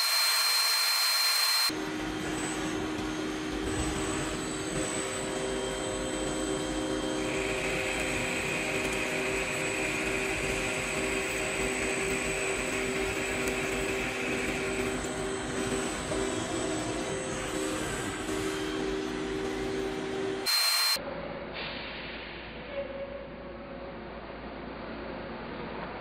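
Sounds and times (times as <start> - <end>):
machine hum with whining tones: 0.0 - 21.6.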